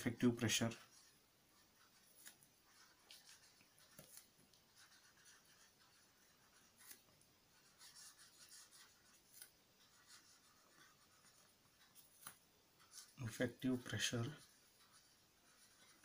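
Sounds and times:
pen scratching on paper: 0:00.0 - 0:16.0.

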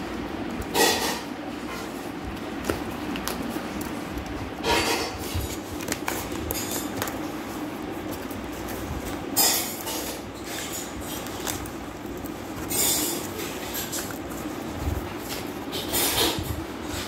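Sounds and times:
steady low hum: 0:00.0 - 0:17.0
rustling and tearing: 0:02.3 - 0:17.0
scissors cutting cardboard parcel: 0:04.7 - 0:17.0.

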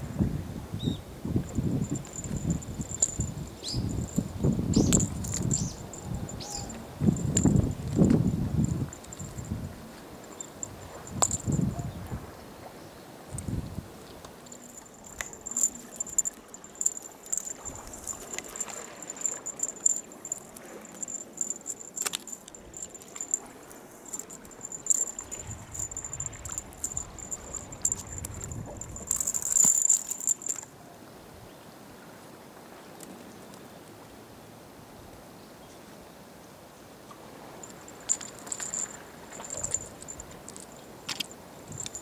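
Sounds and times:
small metallic jingling: 0:01.4 - 0:12.0, 0:14.4 - 0:30.7, 0:37.6 - 0:42.0.

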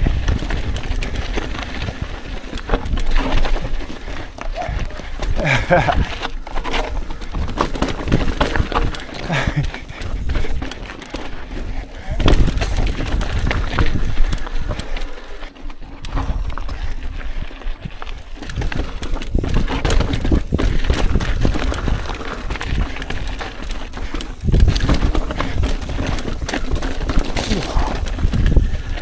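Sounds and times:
mountain bike clattering over rocks: 0:00.0 - 0:29.0.

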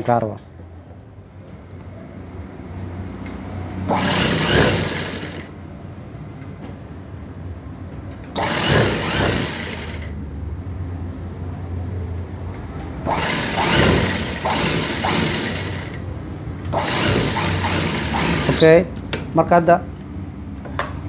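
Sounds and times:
sewing machine stitching: 0:03.9 - 0:05.6, 0:08.4 - 0:10.2, 0:13.0 - 0:16.1, 0:16.7 - 0:18.8
low motor hum: 0:12.8 - 0:18.6.

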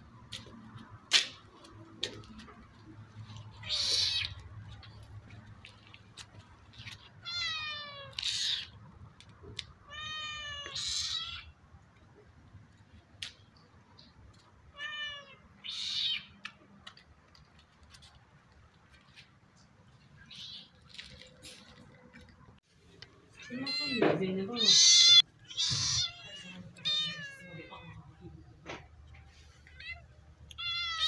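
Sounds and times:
kitten meowing: 0:03.6 - 0:04.4, 0:24.6 - 0:27.8.

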